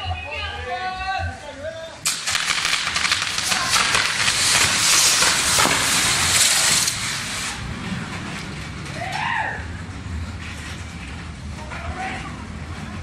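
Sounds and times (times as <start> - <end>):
fireworks hissing and crackling: 2.0 - 7.7.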